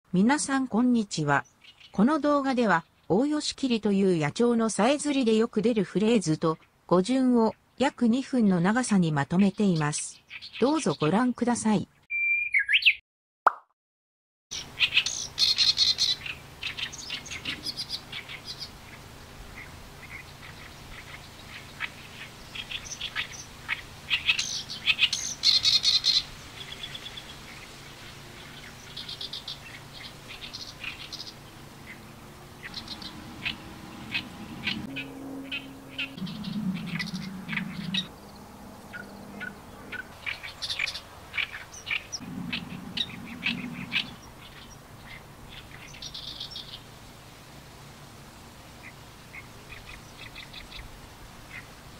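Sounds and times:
warbler singing harsh song: 0:12.1 - 0:13.0, 0:19.6 - 0:46.8.

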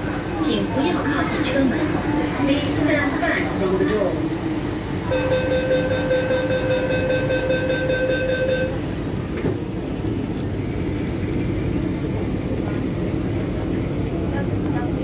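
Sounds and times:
train hum: 0:00.0 - 0:15.0
train doors shutting: 0:03.9 - 0:10.2
pulsing door warning beeps: 0:05.1 - 0:08.8.

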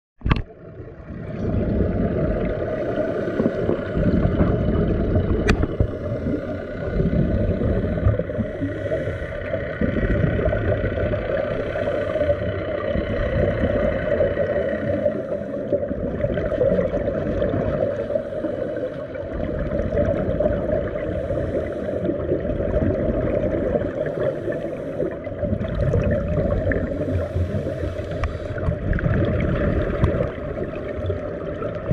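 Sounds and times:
exhaust bubbles underwater: 0:00.2 - 0:31.9
scuba regulator breathing: 0:02.6 - 0:04.4, 0:05.7 - 0:10.2, 0:11.3 - 0:15.9, 0:17.7 - 0:19.4, 0:20.8 - 0:22.4, 0:23.7 - 0:25.5, 0:26.2 - 0:28.9.

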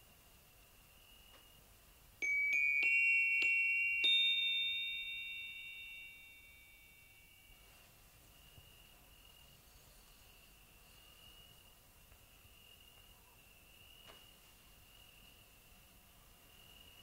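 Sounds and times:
bell-like chime notes: 0:02.2 - 0:07.7.

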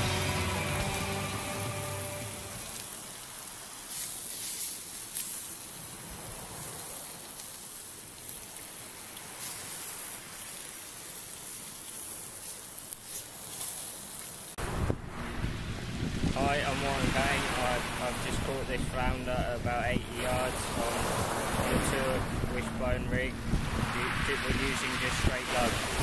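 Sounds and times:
bacon sizzling in a frying pan: 0:02.6 - 0:14.6.

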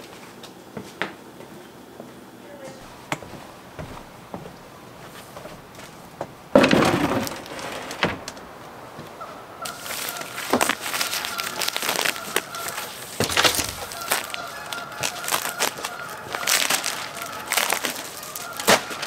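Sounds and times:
wooden slab clattering down: 0:06.2 - 0:08.5, 0:13.1 - 0:14.3
plastic sheet crinkling: 0:06.6 - 0:08.5, 0:09.6 - 0:19.0.

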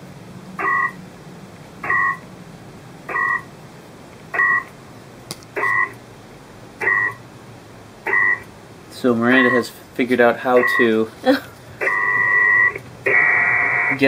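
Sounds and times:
two-tone data beeps: 0:01.9 - 0:02.2, 0:03.1 - 0:03.4, 0:06.8 - 0:07.2, 0:08.1 - 0:08.4, 0:09.3 - 0:09.7, 0:10.6 - 0:11.0, 0:11.8 - 0:12.8.

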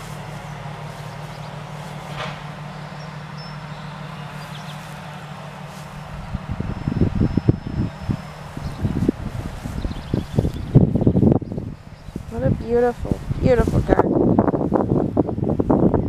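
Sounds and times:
low mechanical hum: 0:00.0 - 0:16.0
wind buffeting microphone: 0:04.2 - 0:16.0.

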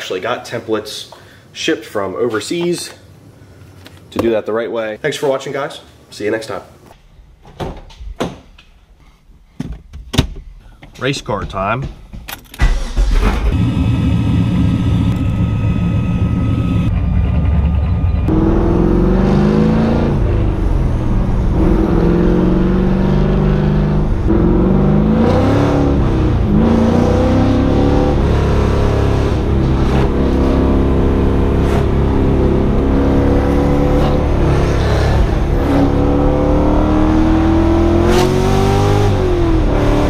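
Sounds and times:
car engine accelerating through gears: 0:18.1 - 0:40.0.

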